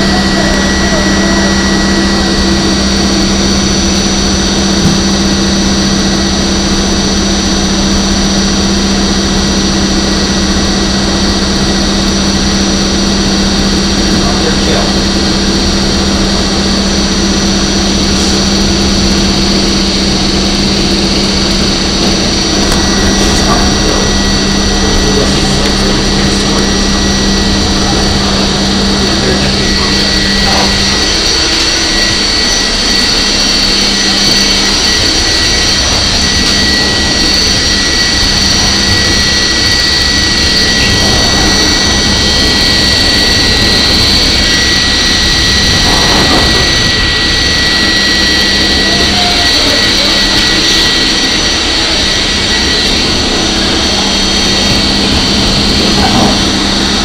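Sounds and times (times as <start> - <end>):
high whine: 0.0 - 57.0
low hum: 0.0 - 57.0
subway wheels on rail: 15.2 - 57.0.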